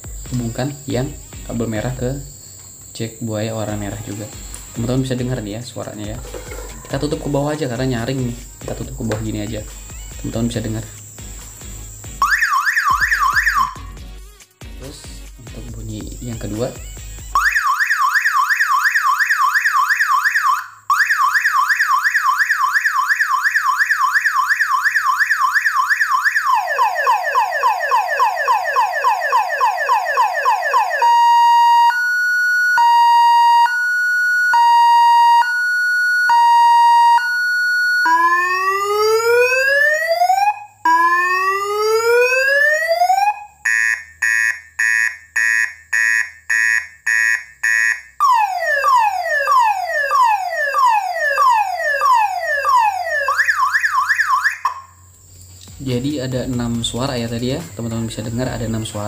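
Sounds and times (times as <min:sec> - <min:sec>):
car alarm siren: 0:03.6 - 0:10.8, 0:12.1 - 0:14.0, 0:16.6 - 0:55.1.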